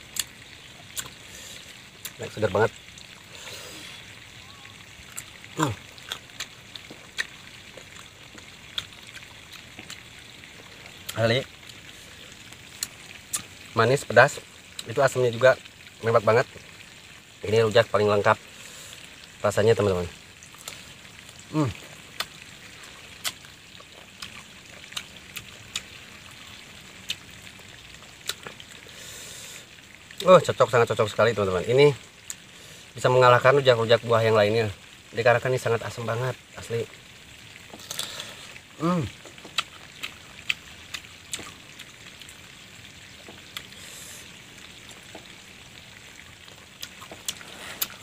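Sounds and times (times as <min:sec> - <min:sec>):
faint steady hiss: 0:00.0 - 0:48.0
crunchy fruit chewing: 0:00.9 - 0:02.2, 0:05.1 - 0:10.1, 0:21.5 - 0:26.5, 0:37.7 - 0:38.5, 0:39.1 - 0:42.4, 0:46.5 - 0:48.0.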